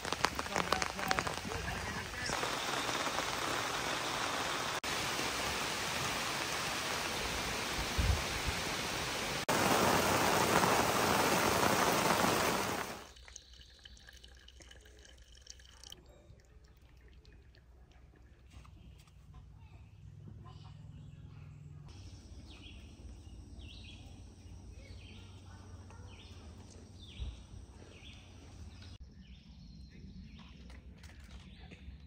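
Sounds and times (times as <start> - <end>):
rain on truck bed cover: 0.0 - 13.1.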